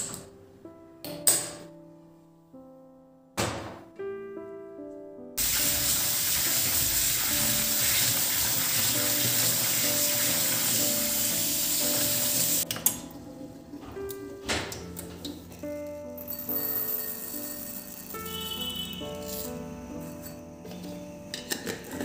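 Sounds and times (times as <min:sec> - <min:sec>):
tap water running into steel sink: 0:05.4 - 0:12.7.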